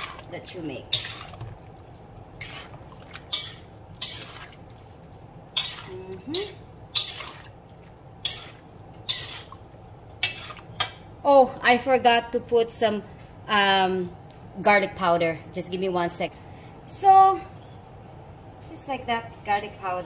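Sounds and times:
metal spoon scraping a pan: 0:00.9 - 0:01.4, 0:02.4 - 0:04.5, 0:05.5 - 0:07.5, 0:08.2 - 0:10.9.

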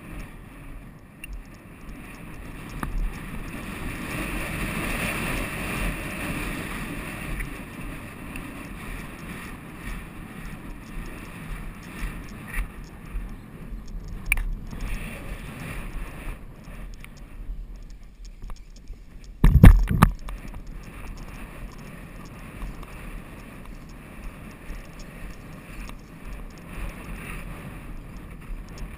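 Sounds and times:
wind rushing over microphone: 0:00.0 - 0:28.9
sharp thumps: 0:18.4 - 0:20.6.

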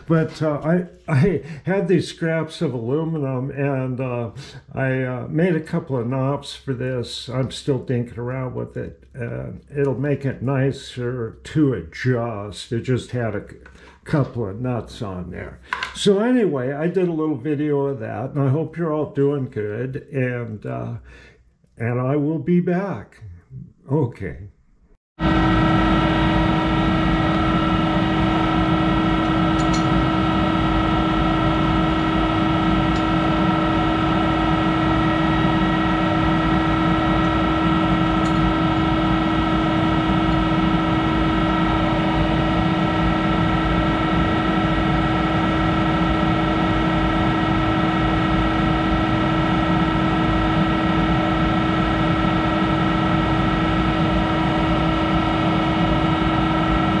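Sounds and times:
lathe electric drive humming: 0:25.2 - 0:57.0.

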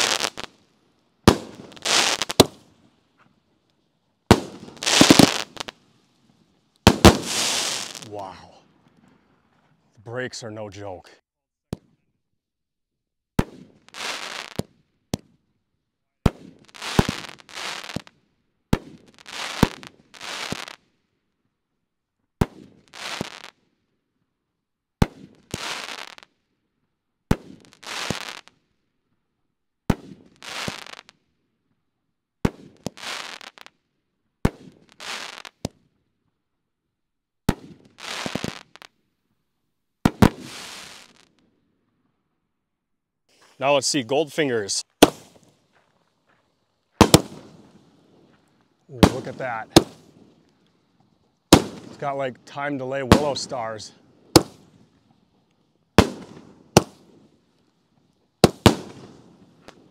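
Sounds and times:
firework shots: 0:00.0 - 0:00.6, 0:01.2 - 0:02.7, 0:04.3 - 0:05.8, 0:06.8 - 0:09.1, 0:13.4 - 0:15.4, 0:16.2 - 0:18.1, 0:18.7 - 0:20.8, 0:22.4 - 0:23.5, 0:25.0 - 0:26.2, 0:27.3 - 0:28.5, 0:29.9 - 0:31.1, 0:32.4 - 0:33.7, 0:34.4 - 0:35.8, 0:37.5 - 0:38.9, 0:40.0 - 0:41.3, 0:44.7 - 0:45.6, 0:47.0 - 0:50.6, 0:51.5 - 0:54.9, 0:56.0 - 0:57.2, 0:58.4 - 0:59.9.

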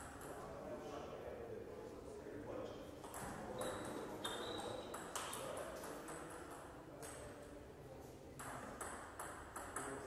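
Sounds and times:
table tennis balls clicking: 0:08.4 - 0:10.0.

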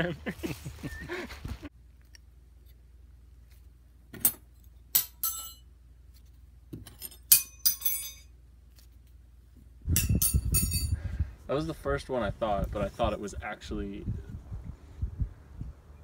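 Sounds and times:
metal spoons clinking: 0:05.0 - 0:05.6, 0:06.9 - 0:08.3, 0:10.0 - 0:10.9.

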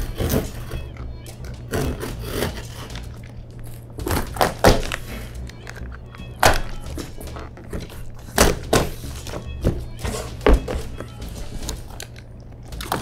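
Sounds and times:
background music: 0:00.0 - 0:13.0
knife scraping cardboard: 0:01.6 - 0:03.0.

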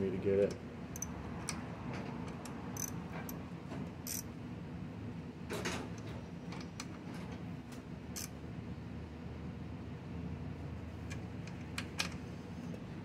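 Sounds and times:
socket ratchet clicking: 0:01.0 - 0:01.6, 0:02.3 - 0:03.0, 0:04.1 - 0:04.3.

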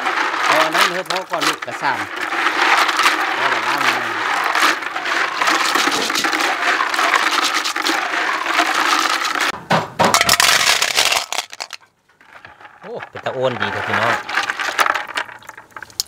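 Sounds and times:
snail shells clacking and cracking: 0:00.0 - 0:09.6, 0:10.3 - 0:16.0.

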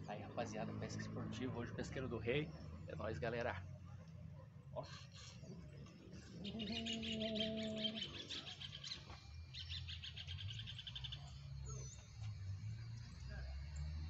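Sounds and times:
birds chirping in trills: 0:04.6 - 0:14.0.

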